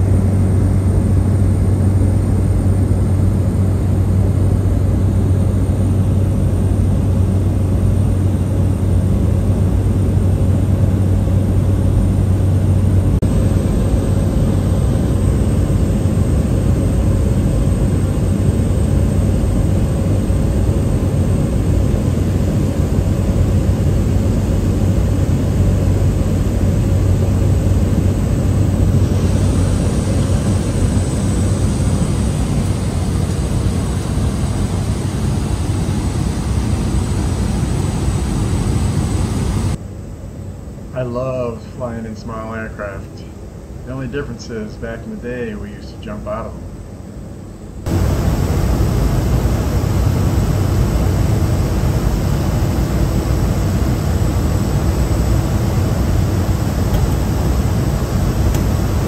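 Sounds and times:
propeller plane cabin drone: 0:00.0 - 0:59.0.

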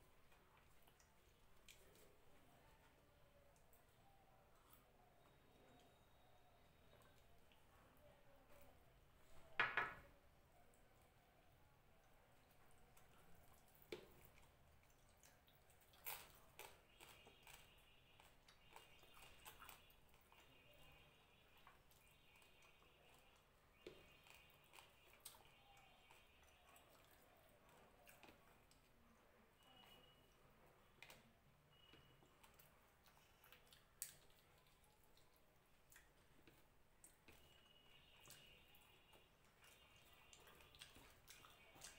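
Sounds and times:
chewing with wet mouth smacks: 0:00.0 - 0:02.2, 0:12.0 - 0:30.0, 0:31.0 - 0:41.9.

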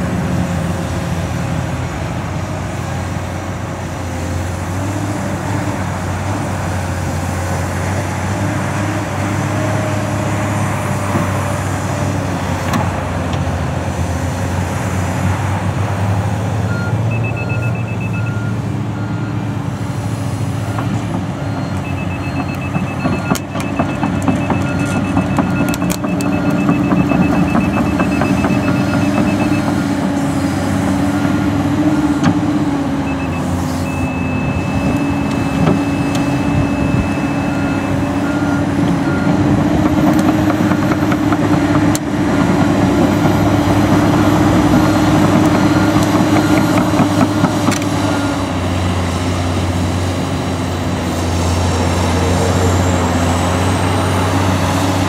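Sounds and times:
excavator diesel engine running: 0:00.0 - 0:55.0
pulsed warning beeper: 0:33.0 - 0:39.4.

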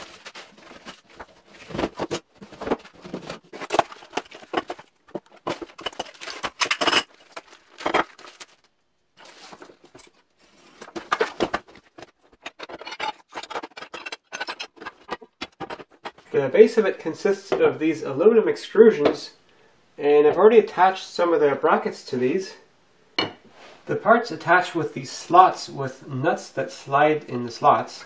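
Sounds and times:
packing material rustling: 0:00.0 - 0:16.3
metal parts clinking: 0:05.5 - 0:08.6, 0:12.3 - 0:16.0.

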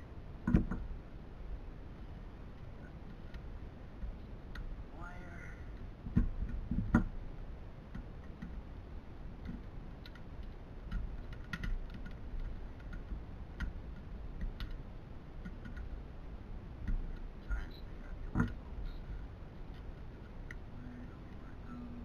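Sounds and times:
low steady rumble: 0:00.0 - 0:22.0
light clicks and taps of tools: 0:09.4 - 0:14.8.

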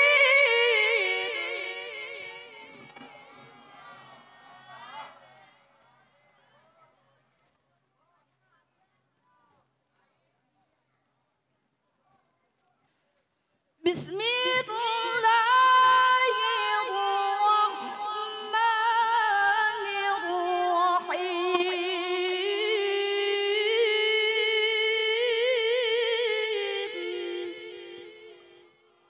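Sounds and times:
woman reciting melodically: 0:00.0 - 0:03.5, 0:13.8 - 0:29.0.

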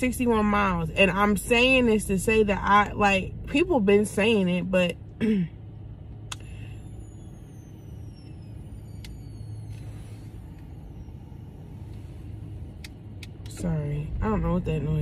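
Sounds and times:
car engine rumble inside cabin: 0:00.0 - 0:15.0
high-pitched whine falling in pitch: 0:06.6 - 0:11.8.

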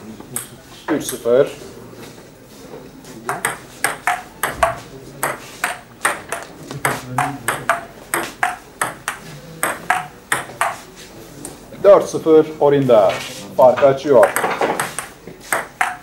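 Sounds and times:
table tennis ball clicking: 0:03.3 - 0:10.8, 0:14.2 - 0:16.0.

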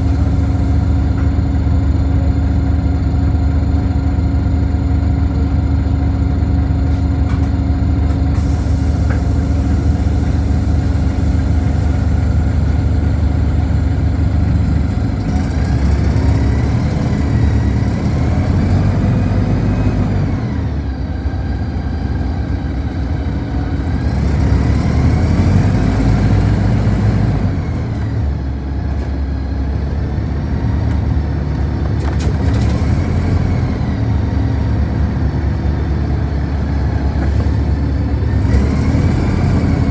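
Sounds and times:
bus engine: 0:00.0 - 0:39.9.

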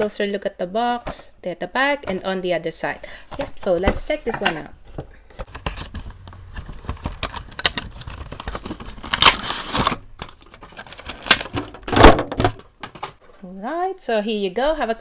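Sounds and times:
cardboard box rustling: 0:03.4 - 0:11.8
plastic crinkling: 0:05.4 - 0:11.9.

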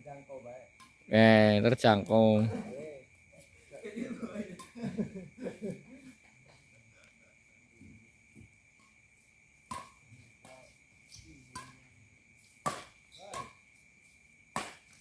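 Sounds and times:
high insect trill: 0:00.0 - 0:15.0
racquets striking shuttlecock: 0:09.6 - 0:15.0.

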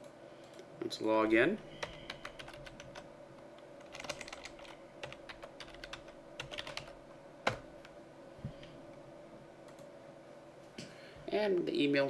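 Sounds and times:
faint steady hum: 0:00.0 - 0:12.0
computer keyboard typing: 0:01.8 - 0:03.1, 0:03.8 - 0:07.6.

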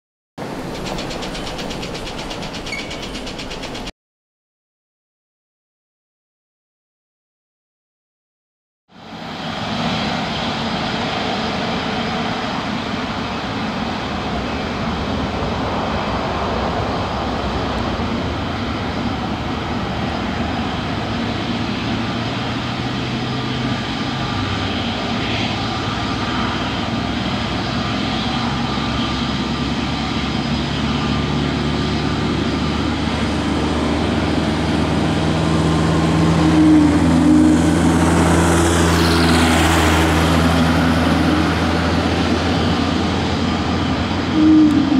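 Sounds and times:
jet engines taxiing: 0:00.4 - 0:03.9, 0:09.0 - 0:44.9
high whine falling in pitch: 0:28.4 - 0:44.9.

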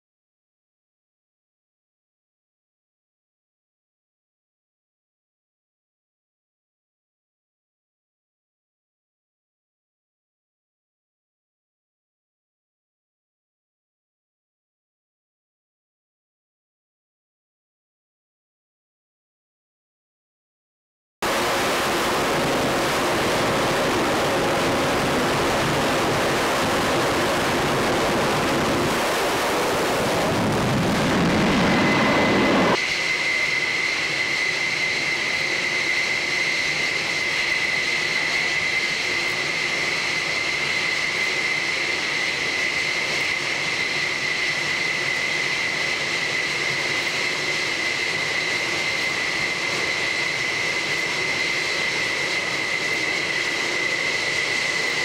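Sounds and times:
high-pitched jet whine: 0:21.2 - 0:55.0
jet engine roar: 0:21.2 - 0:55.0.

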